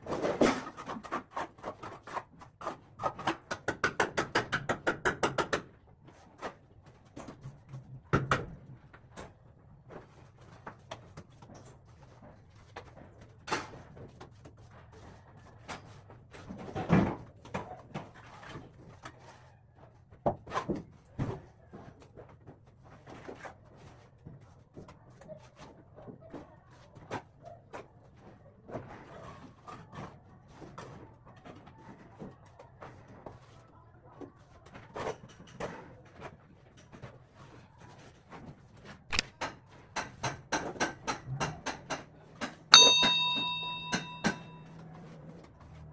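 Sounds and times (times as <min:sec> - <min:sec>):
trowel scraping and slapping plaster: 0:00.0 - 0:04.9.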